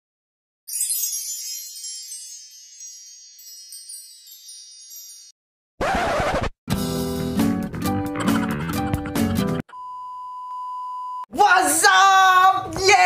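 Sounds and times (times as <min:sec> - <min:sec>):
shimmering wind chimes: 0:00.7 - 0:05.4.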